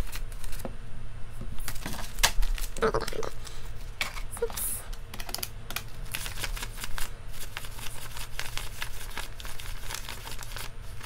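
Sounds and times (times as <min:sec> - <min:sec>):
banknotes being counted by hand: 0:05.1 - 0:11.0.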